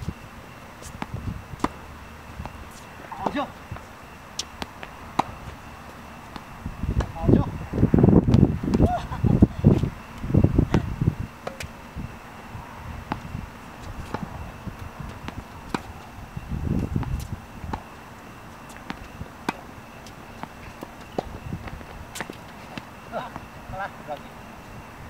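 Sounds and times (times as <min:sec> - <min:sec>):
low rumbling noise: 0:00.0 - 0:22.2
tennis balls hit with rackets: 0:04.4 - 0:07.2, 0:15.1 - 0:16.1.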